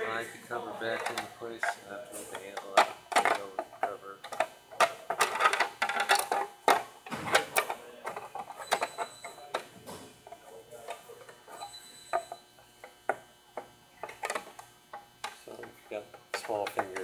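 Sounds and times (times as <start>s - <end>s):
plastic cover clicking and knocking: 2.7s - 8.2s.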